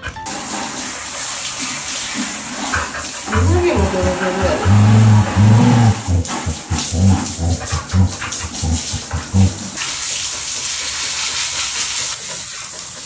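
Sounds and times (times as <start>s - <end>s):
hand shower spraying water: 0.2s - 13.0s
dog grumbling: 2.8s - 9.9s.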